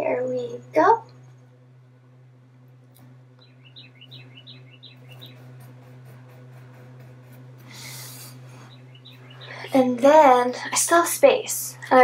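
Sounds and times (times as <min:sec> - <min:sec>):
steady low hum: 0:00.0 - 0:12.0
high falling chirps: 0:03.4 - 0:05.8, 0:07.7 - 0:09.8
hand rubbing paper: 0:05.0 - 0:08.7.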